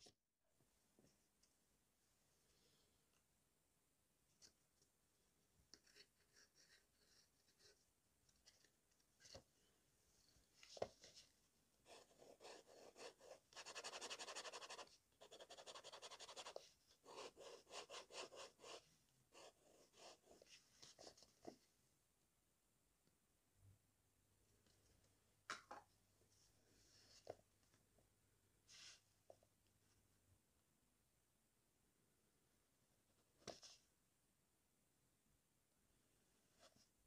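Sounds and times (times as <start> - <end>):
pen nib scratching on paper: 11.9 - 18.8.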